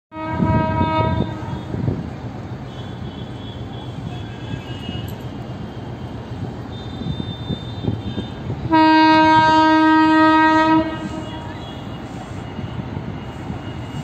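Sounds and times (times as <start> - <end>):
multi-toned train horn blast: 0.1 - 2.0, 6.7 - 14.0
low rumble of train: 0.1 - 14.0.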